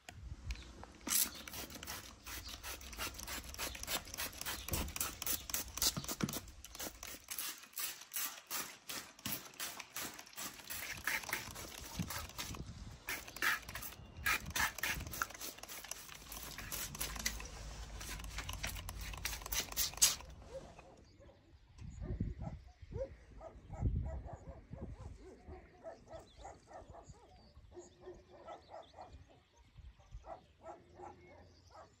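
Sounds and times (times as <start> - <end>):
spray bottle trigger clicks: 0.5 - 20.4
spray bottle spraying: 1.0 - 20.4
faint dogs barking: 20.4 - 32.0.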